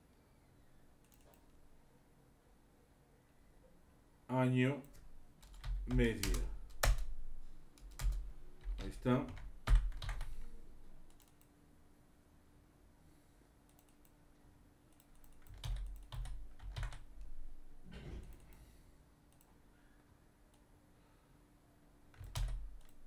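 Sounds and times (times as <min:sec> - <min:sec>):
computer keyboard typing: 0:01.0 - 0:01.6, 0:04.8 - 0:07.2, 0:07.8 - 0:11.5, 0:14.9 - 0:17.3, 0:22.1 - 0:23.0.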